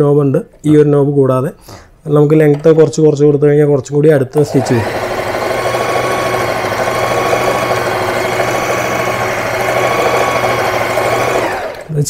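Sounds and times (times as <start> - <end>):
electric sewing machine running: 4.4 - 12.0.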